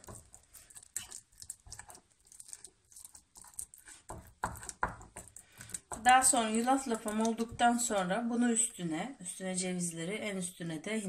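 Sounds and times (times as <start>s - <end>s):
fork mashing pumpkin: 0.0s - 7.9s.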